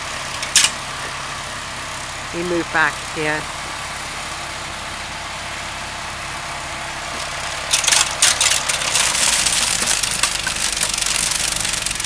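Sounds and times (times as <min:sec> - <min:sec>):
snow blower running: 0:00.0 - 0:12.0
crackling clatter of snow chunks: 0:07.1 - 0:12.0.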